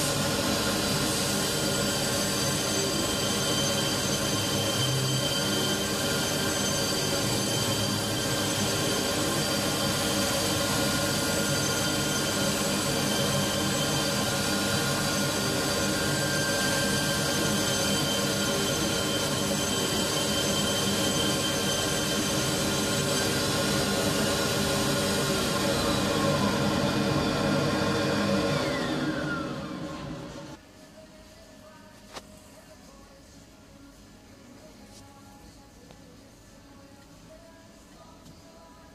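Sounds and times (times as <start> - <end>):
dust extraction rushing: 0.0 - 30.5
milling machine whining: 0.0 - 30.6.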